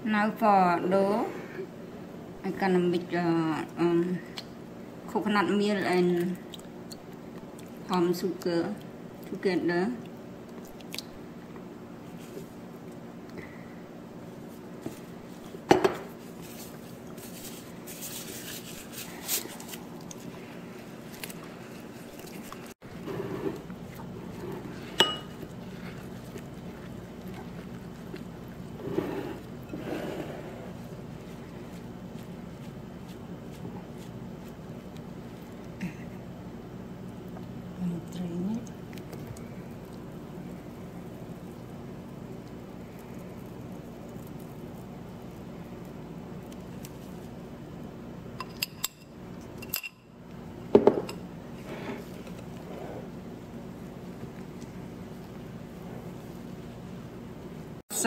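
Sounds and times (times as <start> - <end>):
glass bowl clink: 25.0 - 25.4.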